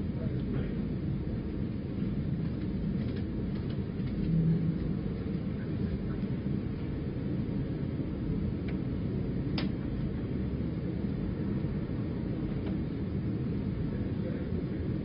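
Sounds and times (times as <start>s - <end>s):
low background rumble: 0.0s - 15.0s
faint clicks: 9.6s - 9.8s.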